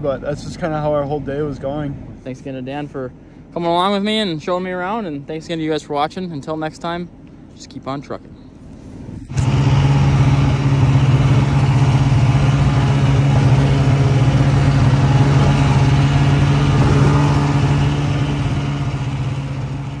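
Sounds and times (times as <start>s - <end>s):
vehicle engine running: 8.8s - 20.0s.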